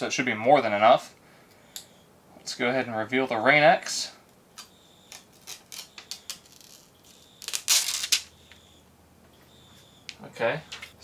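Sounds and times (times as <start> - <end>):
plastic film crackling: 5.1 - 8.3
plastic film crinkling rip: 5.1 - 8.3.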